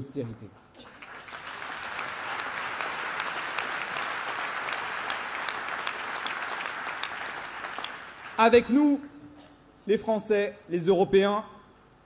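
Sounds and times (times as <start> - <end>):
audience applauding: 0.8 - 8.6.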